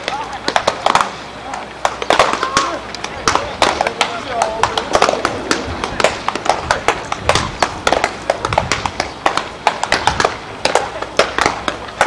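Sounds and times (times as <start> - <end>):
low murmur: 0.0 - 12.0
sharp pops and clicks: 0.0 - 12.0.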